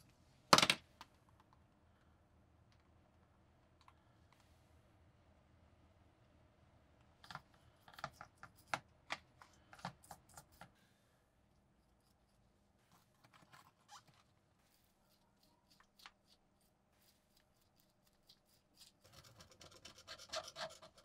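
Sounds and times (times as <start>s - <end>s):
brush clicking on metal parts: 14.7s - 21.0s.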